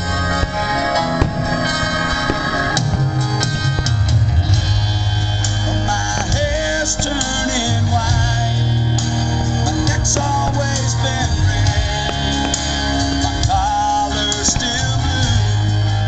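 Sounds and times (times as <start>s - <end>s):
rock song: 0.0s - 16.0s
person singing: 5.4s - 16.0s.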